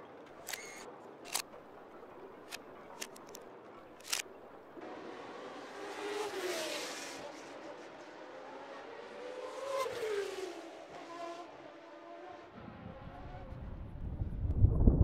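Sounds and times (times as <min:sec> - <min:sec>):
car engine passing by: 0:04.8 - 0:13.9.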